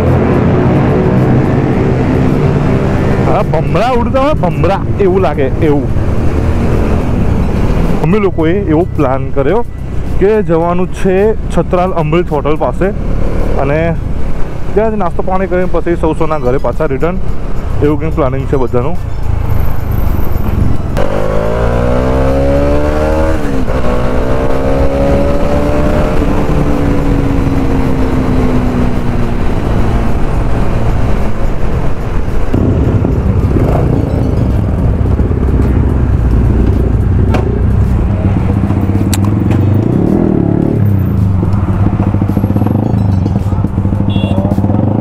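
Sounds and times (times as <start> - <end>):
motorcycle engine revving: 0.0 - 9.2, 19.4 - 45.0
low road noise: 0.0 - 45.0.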